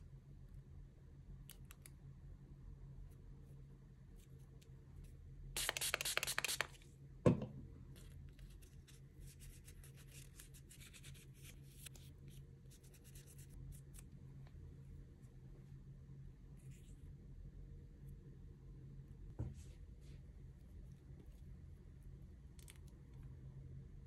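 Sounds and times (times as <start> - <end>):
nail wipe rubbing on nails: 5.6 - 6.8.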